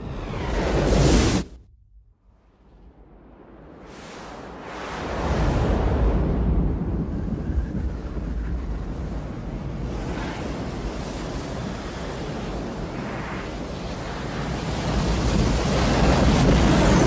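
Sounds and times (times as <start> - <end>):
deep rumble: 0.2 - 10.2.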